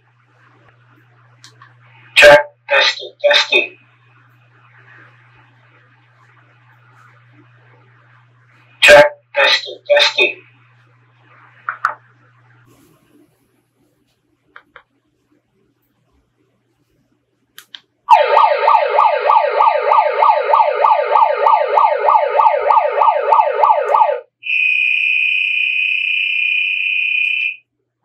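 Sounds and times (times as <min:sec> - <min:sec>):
police siren wail: 0:18.1 - 0:24.7.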